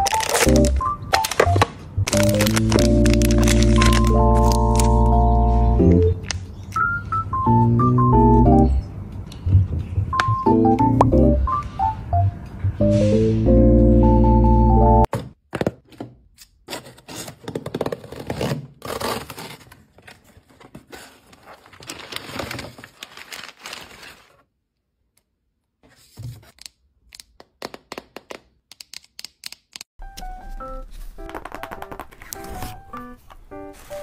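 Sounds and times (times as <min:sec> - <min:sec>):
packing paper crumpling: 0:00.0 - 0:05.2, 0:18.9 - 0:24.4.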